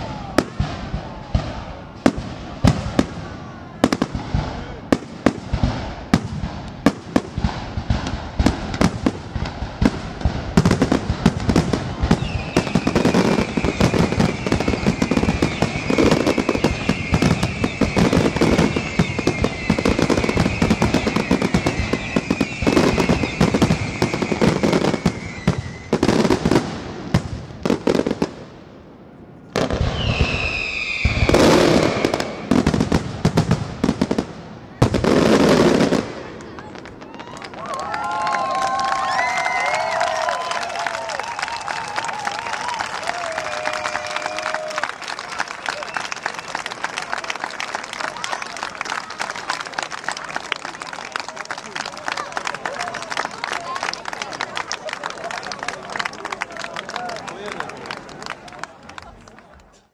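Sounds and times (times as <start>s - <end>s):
fireworks bangs and crackles: 0.0s - 56.7s
high falling whistle: 12.2s - 26.0s, 29.9s - 32.5s.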